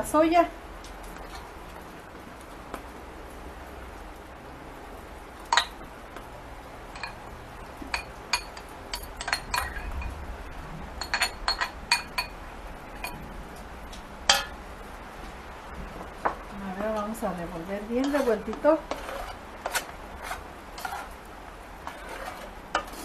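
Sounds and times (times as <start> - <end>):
metal spoon clinking against bowl: 7.9 - 10.0.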